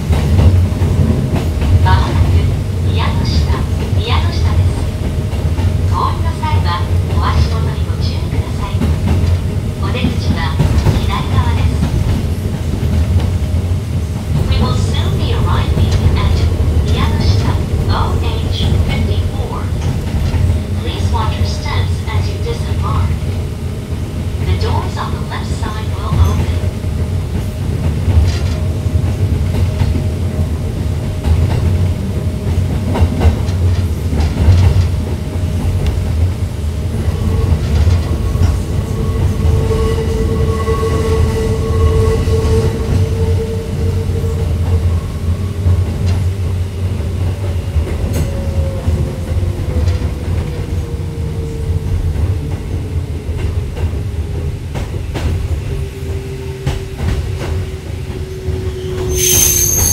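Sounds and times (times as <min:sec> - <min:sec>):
rail clicks: 0:00.0 - 0:59.9
train low rumble: 0:00.0 - 0:59.9.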